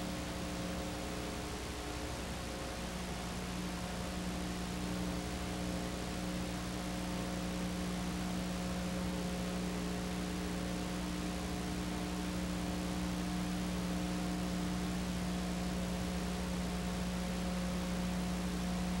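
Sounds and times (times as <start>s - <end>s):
low electrical hum: 0.0s - 19.0s.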